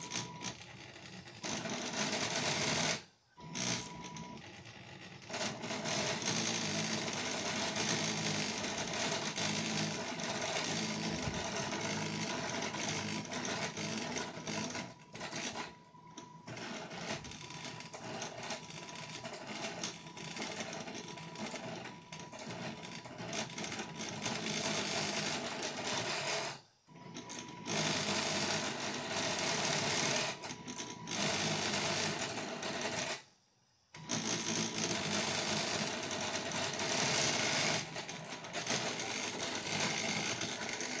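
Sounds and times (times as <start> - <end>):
printer motors whirring and buzzing: 1.4 - 19.2.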